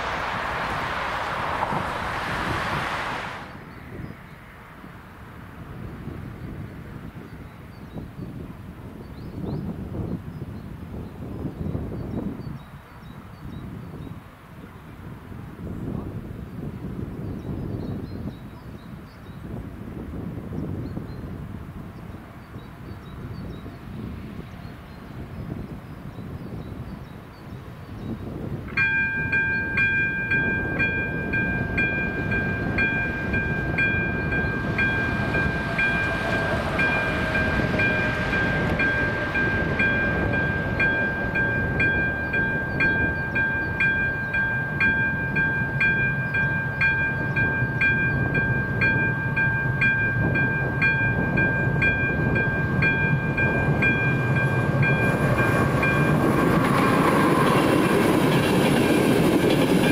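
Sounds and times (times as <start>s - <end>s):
train rumble: 0.0s - 7.2s, 27.8s - 59.9s
level crossing warning bell: 28.7s - 59.9s.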